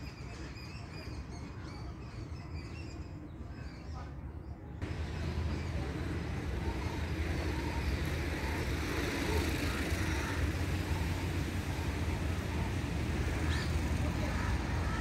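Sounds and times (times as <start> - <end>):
distant road traffic rumble: 4.1 - 15.0.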